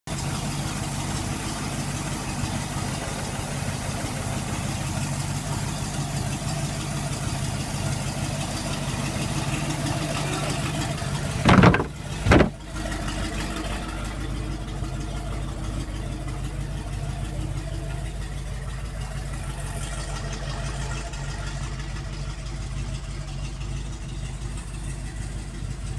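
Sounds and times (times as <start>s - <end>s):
boat engine idling: 0.1s - 25.9s
loud knocks: 11.4s - 12.6s.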